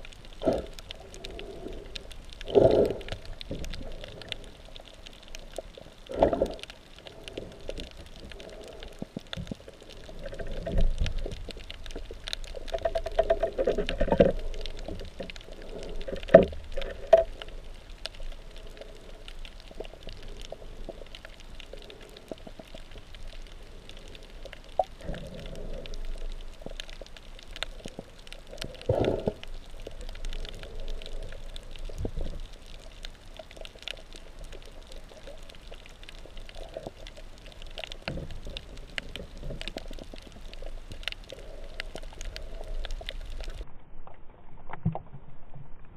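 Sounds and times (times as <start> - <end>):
faint clicks: 0.0 - 45.0
muffled underwater sloshing and gurgling: 0.0 - 45.9.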